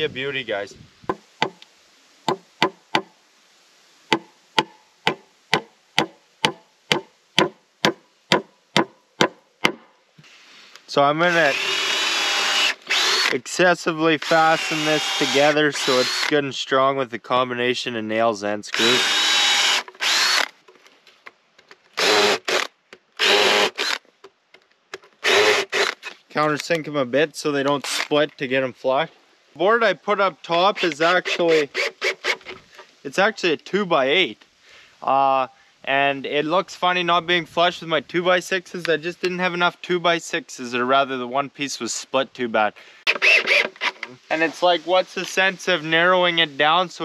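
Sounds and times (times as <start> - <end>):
cordless drill whining: 11.3 - 13.4, 14.2 - 16.3, 18.8 - 20.5, 22.0 - 24.0, 25.2 - 26.1, 43.1 - 44.1.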